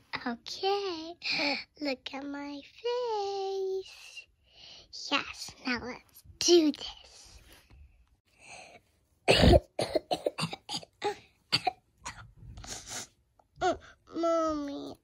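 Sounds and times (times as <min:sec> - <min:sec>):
child fake coughing: 0:09.2 - 0:12.4.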